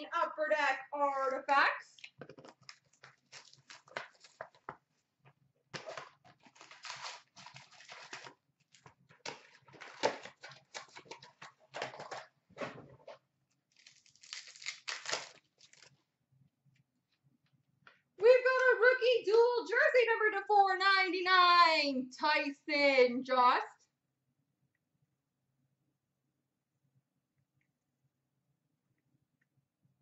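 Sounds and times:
cards rustling: 2.2 - 4.8, 5.8 - 12.2
cardboard and wrappers tearing: 2.6 - 4.7, 5.7 - 12.1, 13.7 - 16.0.

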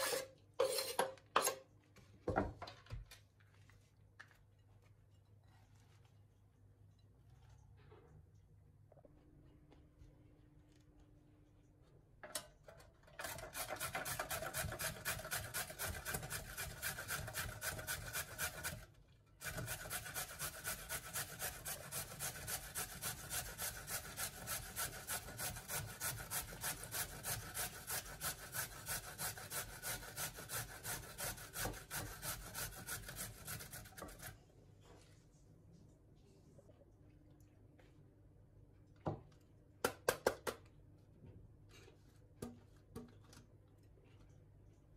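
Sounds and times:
carrot grating on metal grater: 0.0 - 1.0, 13.2 - 34.3.

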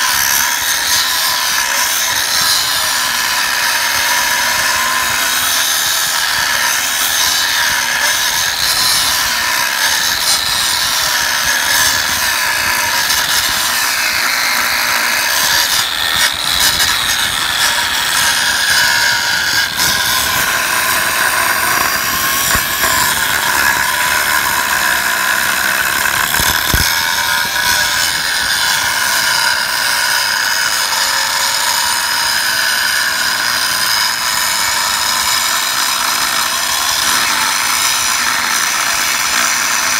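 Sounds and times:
angle grinder cutting steel: 0.0 - 39.9.

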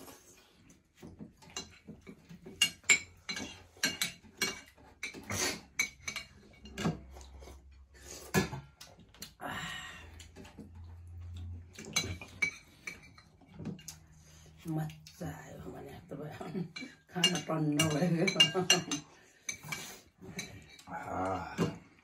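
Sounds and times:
cutlery clinking on plates and bowls: 1.0 - 8.6, 11.7 - 14.1, 16.7 - 22.0.

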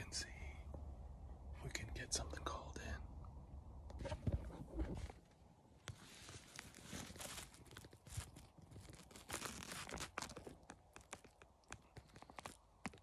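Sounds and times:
clothing rustling: 4.0 - 10.5.

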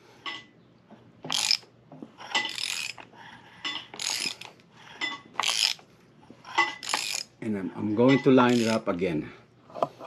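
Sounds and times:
socket ratchet clicking: 1.3 - 1.6, 2.5 - 3.1, 3.9 - 4.5, 5.4 - 5.8, 6.8 - 7.3.

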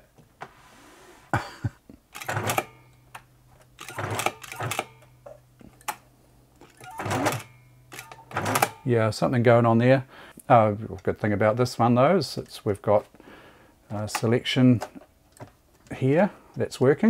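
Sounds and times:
sewing machine running: 6.8 - 8.8.

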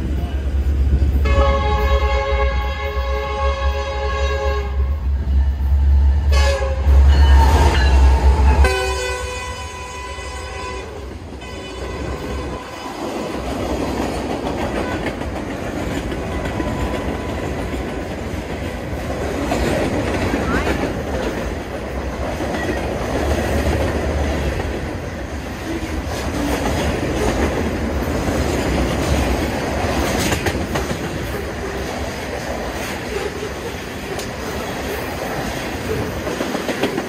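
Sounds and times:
heavy low train rumble: 0.0 - 37.0
train air horn blasts: 1.2 - 5.1, 6.2 - 12.8
train wheels clattering: 12.1 - 37.0.

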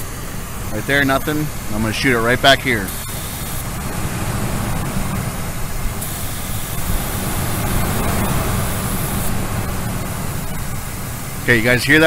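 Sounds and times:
truck engine idling: 0.0 - 12.0
aerosol can hissing: 2.8 - 3.8.

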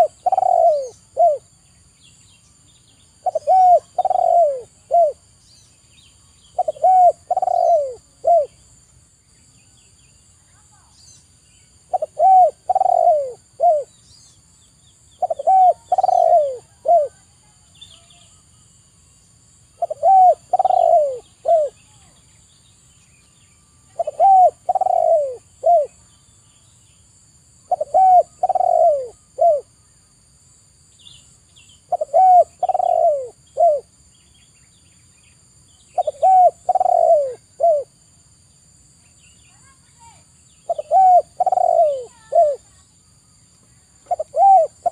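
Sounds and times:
dove cooing: 0.0 - 1.5, 3.2 - 5.2, 6.6 - 8.6, 11.9 - 13.9, 15.2 - 17.3, 19.8 - 21.9, 23.9 - 26.0, 27.7 - 29.7, 31.8 - 33.9, 35.9 - 38.0, 40.6 - 42.7, 44.0 - 44.9.

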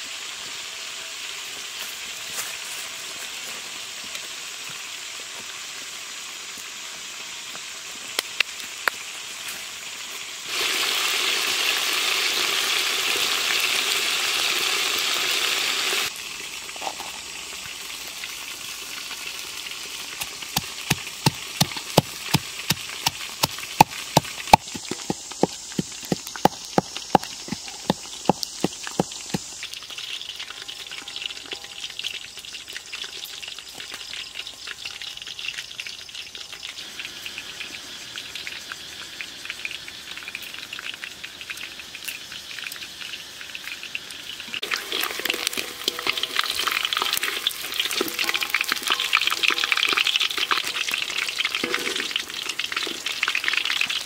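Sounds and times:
chicken sizzling in a wok: 0.0 - 54.0
fire cracks: 17.4 - 30.6, 43.8 - 54.0
pestle pounding in a mortar: 20.2 - 29.5.

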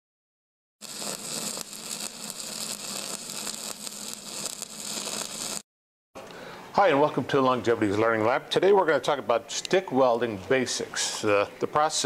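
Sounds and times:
welding arc crackling and hissing: 0.8 - 5.7.

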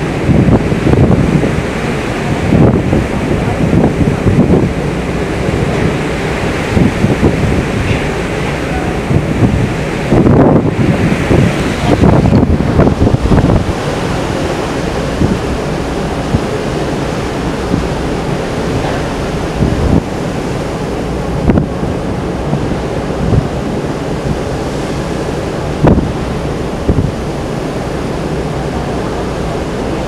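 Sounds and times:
sea rushing: 0.0 - 30.0
wind buffeting microphone: 0.0 - 30.0.

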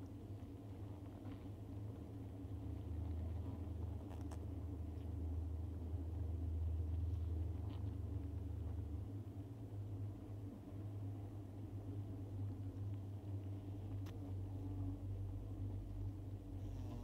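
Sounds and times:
bees humming: 16.6 - 17.0.

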